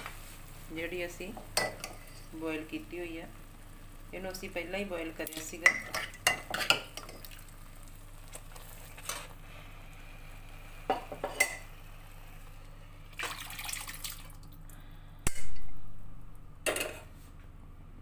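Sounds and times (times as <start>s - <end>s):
peas and water splashing into pan: 13.1s - 14.4s.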